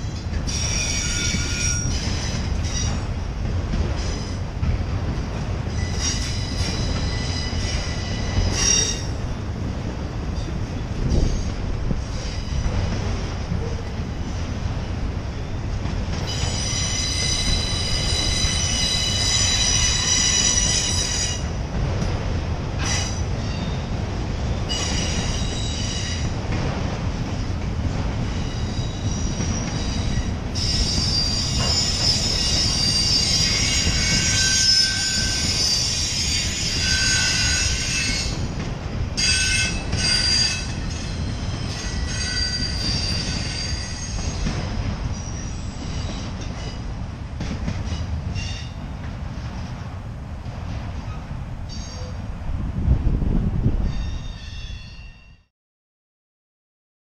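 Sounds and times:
freight cars low rumble: 0:00.0 - 0:20.6, 0:37.9 - 0:54.3
steel wheels squealing: 0:00.5 - 0:03.1, 0:05.7 - 0:09.2, 0:16.2 - 0:21.5, 0:24.6 - 0:26.3, 0:28.4 - 0:38.5, 0:39.2 - 0:46.8.

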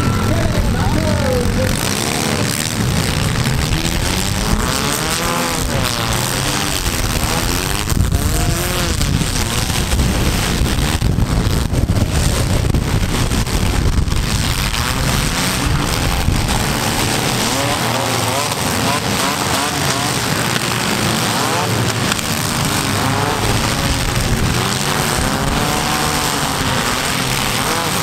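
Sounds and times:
car engines revving: 0:00.0 - 0:28.0.

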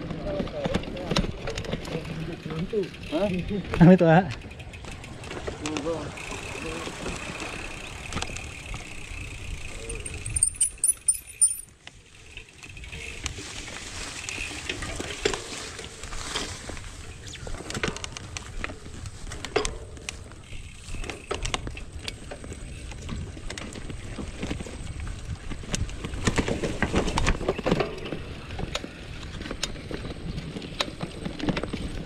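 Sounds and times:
bike jolting: 0:00.0 - 0:32.0
bike parts rattling and clicking: 0:00.0 - 0:32.0.

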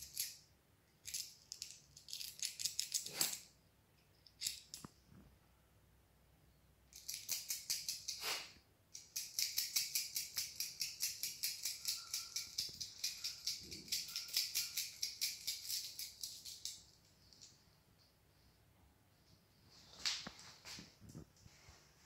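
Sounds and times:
coins shaken jingling: 0:09.1 - 0:16.7.

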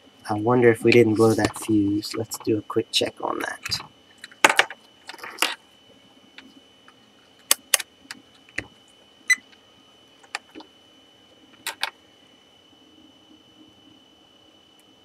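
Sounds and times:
faint high whine: 0:00.0 - 0:15.0.

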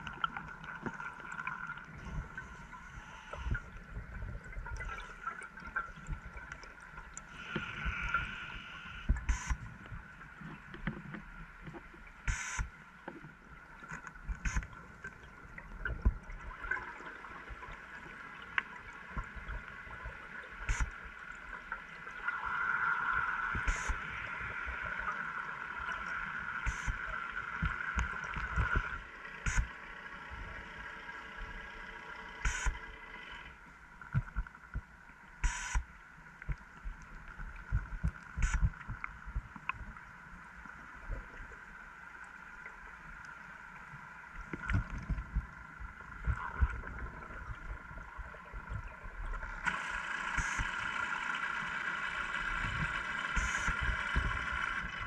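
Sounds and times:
underwater gurgling water: 0:00.0 - 0:55.0
steady hum: 0:19.0 - 0:42.3, 0:44.4 - 0:55.0
sharp clicks: 0:32.4 - 0:32.8.

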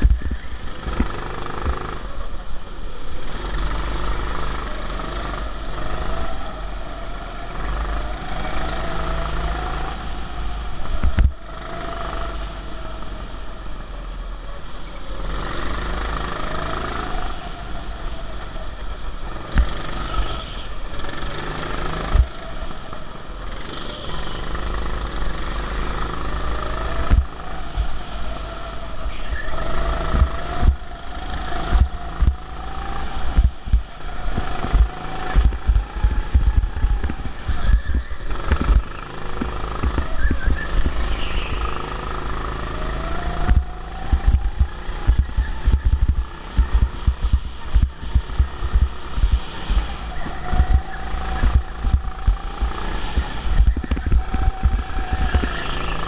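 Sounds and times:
go-kart motor: 0:00.0 - 0:56.0
low rumble: 0:30.0 - 0:41.1, 0:43.0 - 0:55.6.

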